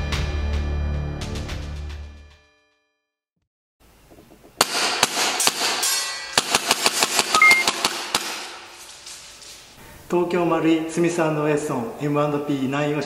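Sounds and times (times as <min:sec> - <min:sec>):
airsoft pistol firing: 0:06.4 - 0:08.6.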